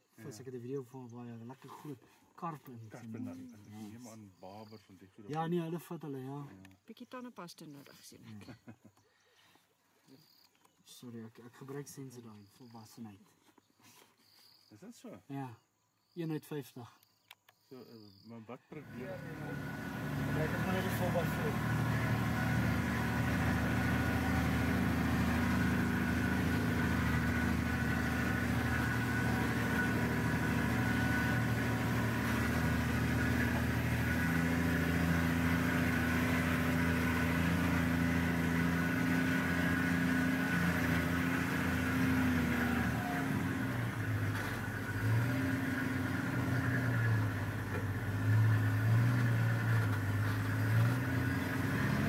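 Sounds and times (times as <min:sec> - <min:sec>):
vehicle engine driving uphill: 0:18.8 - 0:52.0.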